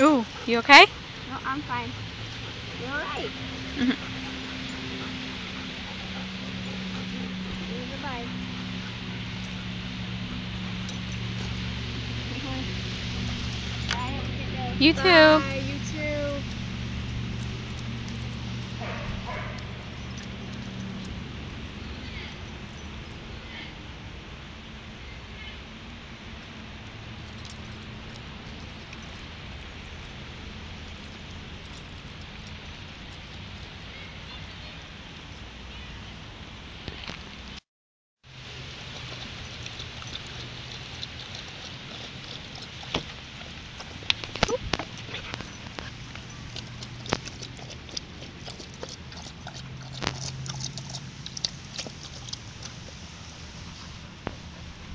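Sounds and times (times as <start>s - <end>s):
dog lapping water: 0.0s - 14.4s, 38.3s - 54.9s
low hum: 0.0s - 33.8s
outdoor background hiss: 0.0s - 37.6s, 38.2s - 54.9s.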